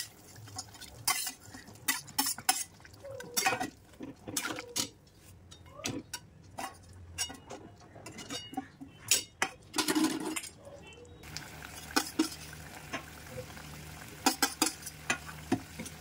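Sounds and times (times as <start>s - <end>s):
metal utensils scraping a wok: 0.0s - 2.8s, 6.6s - 10.6s, 14.2s - 16.0s.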